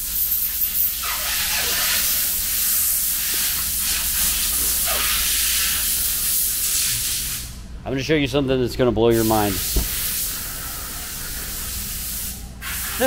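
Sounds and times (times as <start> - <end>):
airy hiss: 9.1 - 13.0.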